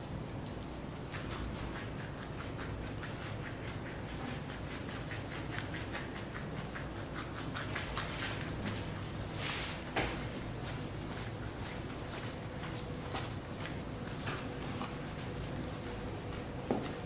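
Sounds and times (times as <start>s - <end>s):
gloved hands rubbing skin: 0.0s - 17.0s.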